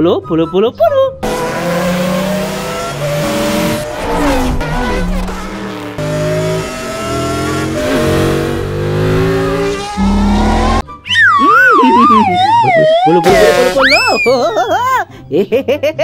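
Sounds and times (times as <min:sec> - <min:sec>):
race car engines revving: 0:01.2 - 0:10.8.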